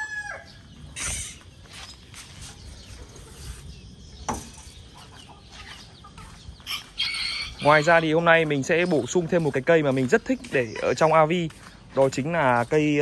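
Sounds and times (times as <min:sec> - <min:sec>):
rooster crowing: 0:00.0 - 0:00.6
chickens clucking: 0:00.0 - 0:13.0.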